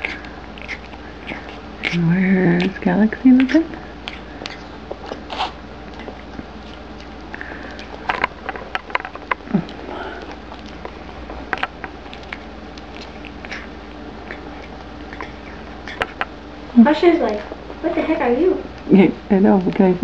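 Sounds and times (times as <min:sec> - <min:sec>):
puppy clicking on kibble: 0:05.9 - 0:16.3.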